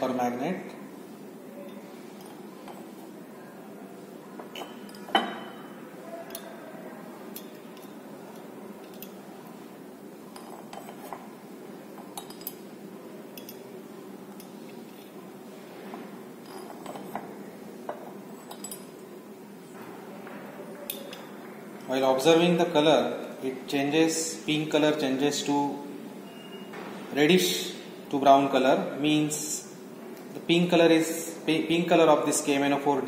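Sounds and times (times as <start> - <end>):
glass clinking: 1.6 - 3.0, 4.4 - 6.6, 10.3 - 11.3, 12.0 - 12.7, 13.3 - 13.7, 16.4 - 19.0.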